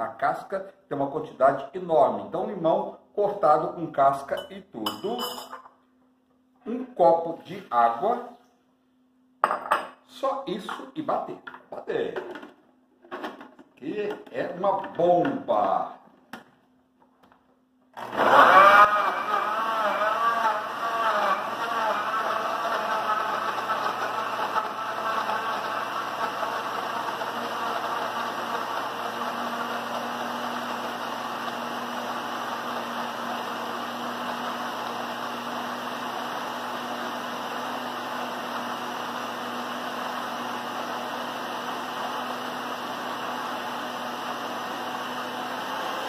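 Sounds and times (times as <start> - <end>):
electric blender whirring: 18.0 - 46.0.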